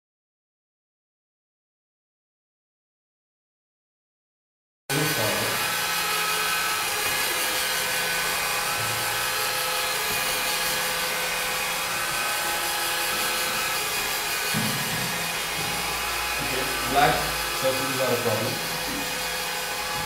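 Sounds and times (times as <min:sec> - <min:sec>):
robotic vacuum cleaner running: 0:04.9 - 0:20.0.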